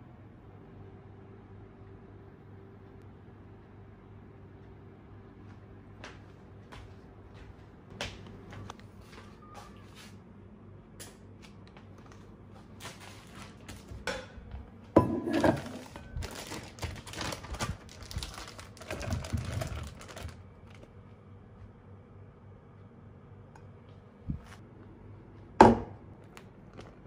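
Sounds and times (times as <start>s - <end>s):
plastic bag rustling: 15.3s - 20.9s.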